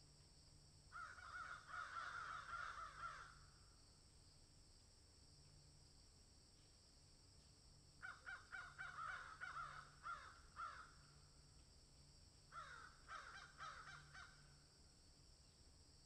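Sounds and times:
faint bird calls: 0:00.9 - 0:03.6, 0:08.0 - 0:11.4, 0:12.5 - 0:14.6.

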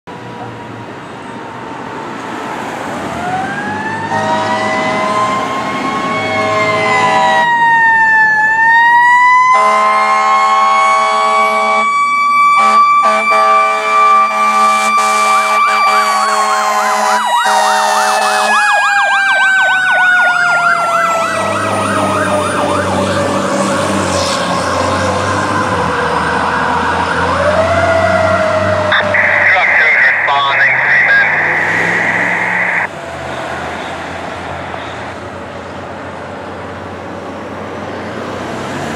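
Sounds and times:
electronic yelp siren: 0:03.1 - 0:32.9
air horn blasts: 0:04.1 - 0:05.3, 0:06.4 - 0:07.5, 0:09.6 - 0:11.9, 0:12.6 - 0:18.6.

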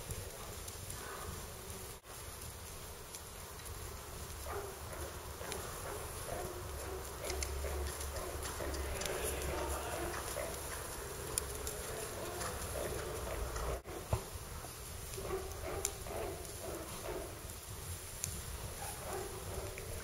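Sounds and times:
hoofbeats on sand: 0:00.0 - 0:20.0
horse breathing: 0:04.4 - 0:17.5
sharp clicks: 0:05.4 - 0:13.8.

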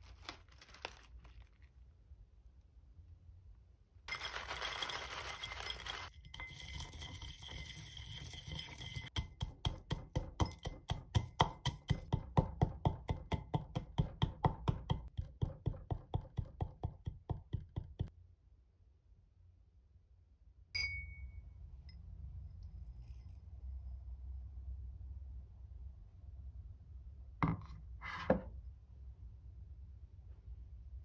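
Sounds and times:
flakes clattering into a mortar: 0:04.1 - 0:09.2
pestle pounding and crunching: 0:09.1 - 0:18.1.

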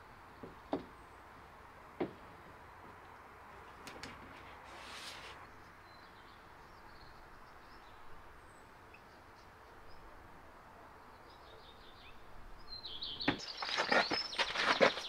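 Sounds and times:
birds chirping: 0:11.1 - 0:15.0.

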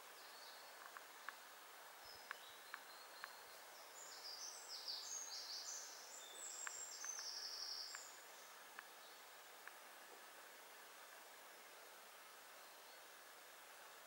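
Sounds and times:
woodland ambience: 0:00.0 - 0:14.0
faint ticks: 0:00.7 - 0:01.5, 0:02.1 - 0:03.5, 0:06.4 - 0:09.0, 0:09.6 - 0:10.3.

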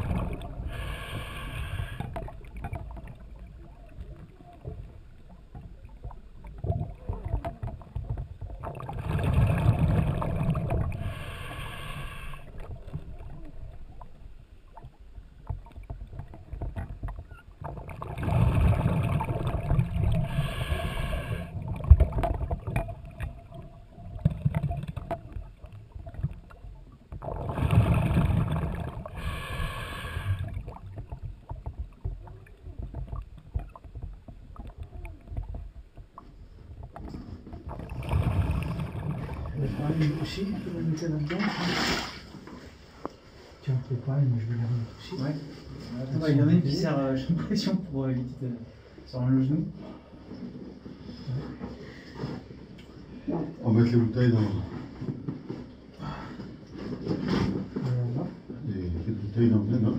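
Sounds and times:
diver breathing through regulator: 0:00.4 - 0:02.3, 0:10.8 - 0:12.6, 0:20.1 - 0:21.6, 0:27.4 - 0:30.6.

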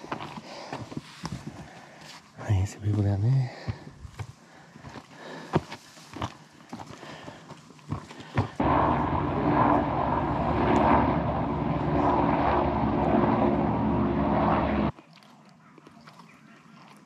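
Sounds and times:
loud engine drone: 0:08.6 - 0:14.9.

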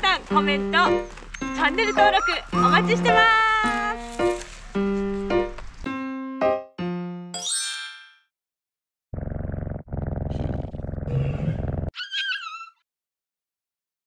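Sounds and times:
chime-like ding notes: 0:01.4 - 0:04.1, 0:07.4 - 0:08.2.

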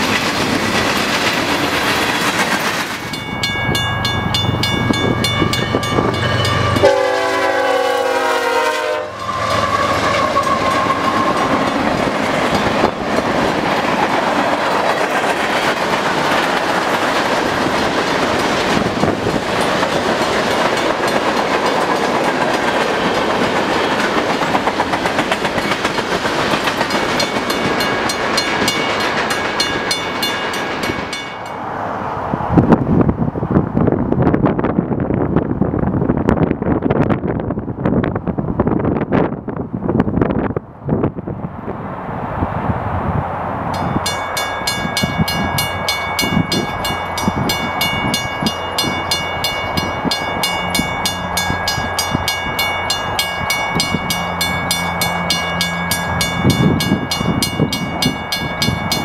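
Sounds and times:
train wheels clacking on rails: 0:00.0 - 0:07.4, 0:09.2 - 0:31.6, 0:43.7 - 0:59.0
crossing bell ringing: 0:01.5 - 0:16.9, 0:17.7 - 0:24.6, 0:25.2 - 0:31.8, 0:43.7 - 0:59.0
train horn: 0:05.4 - 0:11.8.

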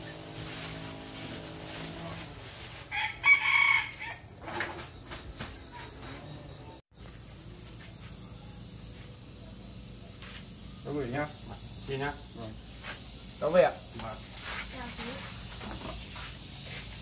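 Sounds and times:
high-pitched insect drone: 0:00.0 - 0:17.0
rooster crowing: 0:02.9 - 0:04.4.

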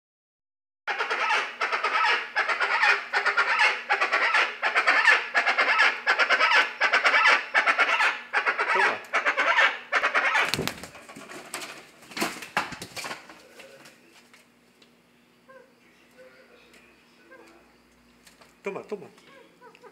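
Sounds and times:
chachalacas calling in chorus: 0:00.9 - 0:10.6, 0:15.4 - 0:17.9.

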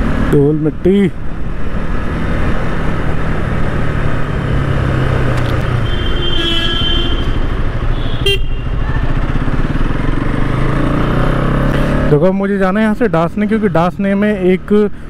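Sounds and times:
wind and road rush: 0:00.0 - 0:15.0
motorcycle engine running: 0:03.3 - 0:12.3
vehicle horn: 0:05.8 - 0:08.8.

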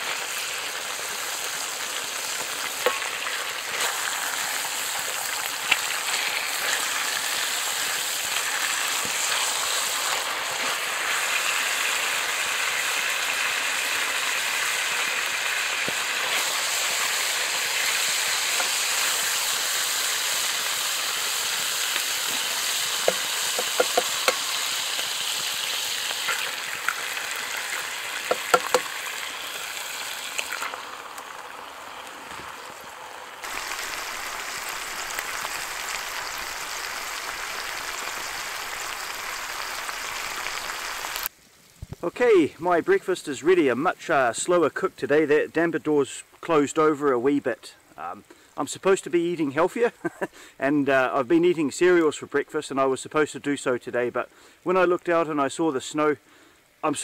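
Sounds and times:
bacon sizzling in a skillet: 0:00.0 - 0:41.8
sharp taps: 0:28.3 - 0:28.8.

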